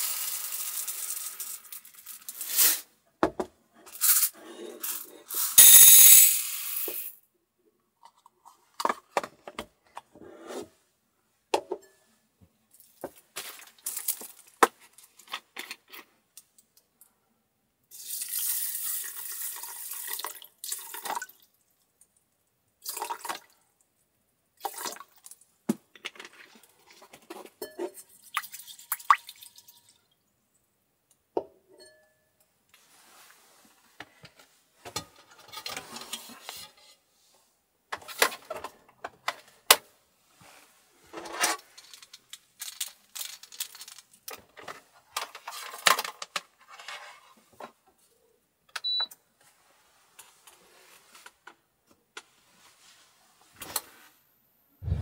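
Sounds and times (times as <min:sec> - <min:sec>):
rice poured into metal pot: 0:00.0 - 0:02.9, 0:17.9 - 0:21.0
small clicks and rustles: 0:41.6 - 0:48.1.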